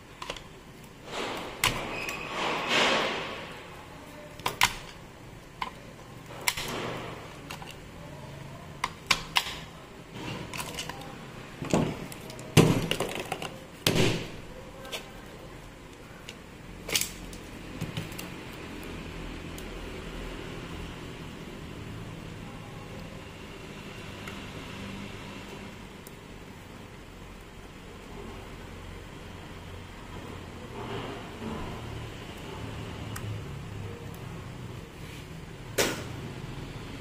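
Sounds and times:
tools and parts clicking on workbench: 0.2 - 0.5, 5.6 - 7.9, 8.8 - 13.6.

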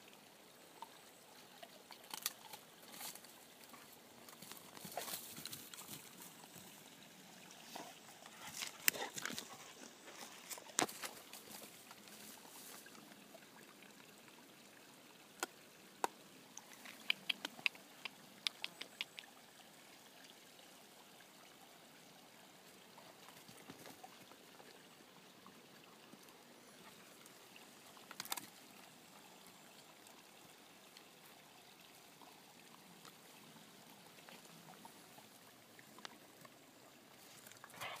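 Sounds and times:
faint steady hiss: 0.0 - 38.0
twigs snapping and crackling: 2.0 - 3.1, 28.1 - 28.5.

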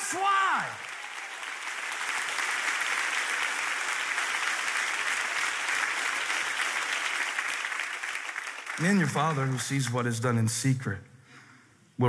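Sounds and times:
large audience applauding: 0.0 - 9.9.

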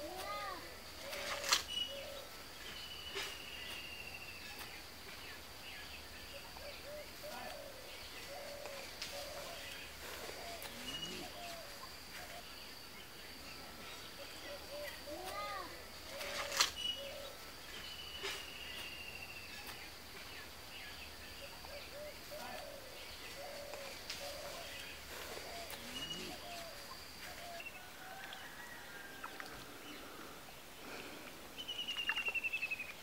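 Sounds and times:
birds chirping: 0.0 - 33.0.

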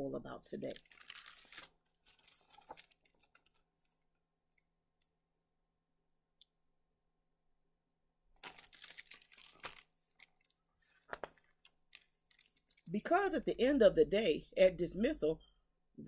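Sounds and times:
paper rustling and tapping: 1.0 - 3.6, 8.4 - 9.9, 11.0 - 12.8.

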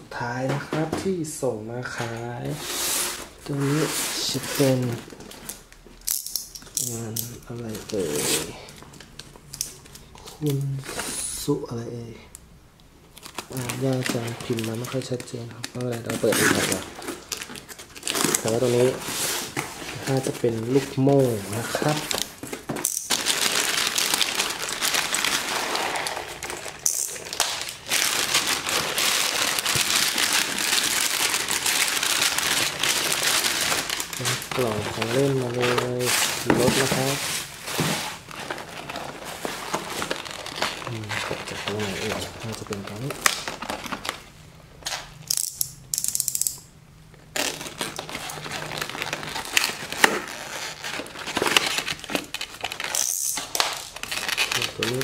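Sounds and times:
plastic bag crinkling and rustling: 1.8 - 5.8, 6.9 - 11.3, 13.1 - 45.2, 47.2 - 55.0
packing tape cut and peeled: 13.2 - 20.8, 21.4 - 44.2, 47.3 - 55.0.

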